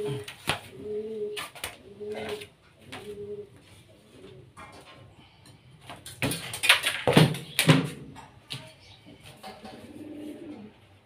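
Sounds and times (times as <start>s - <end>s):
pigeon cooing: 0.0s - 5.5s, 9.2s - 11.0s.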